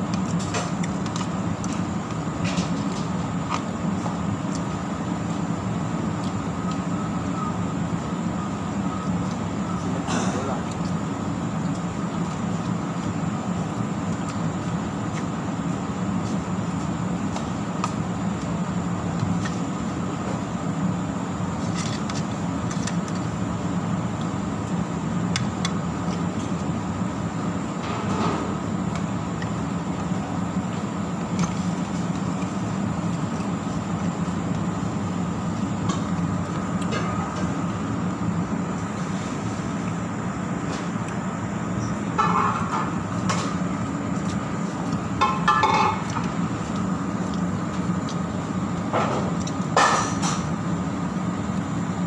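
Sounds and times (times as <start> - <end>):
loud background rumble: 0.0 - 52.0
faint high whine: 6.4 - 10.6.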